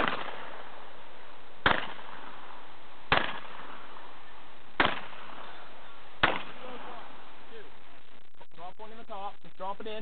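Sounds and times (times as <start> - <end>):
shotgun shots: 0.0 - 0.8, 1.6 - 2.5, 3.1 - 4.0, 4.8 - 5.5, 6.2 - 7.0.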